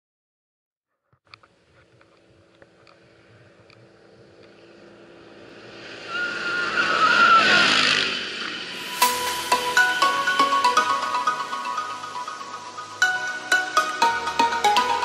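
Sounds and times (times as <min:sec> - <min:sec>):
buggy engine passing: 0:01.5 - 0:08.8
music with mallet notes: 0:08.8 - 0:15.0.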